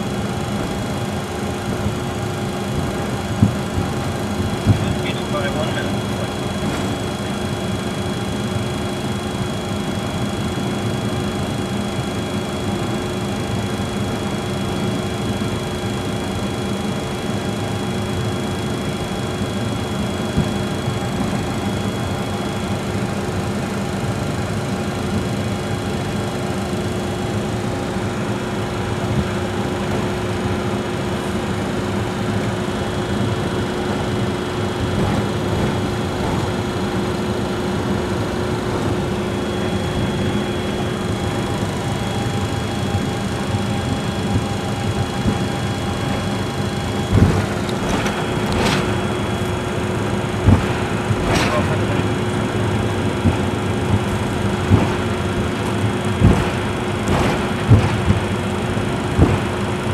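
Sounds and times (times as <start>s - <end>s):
cabin fans rushing: 0.0s - 59.9s
jet engines at low thrust: 0.0s - 59.9s.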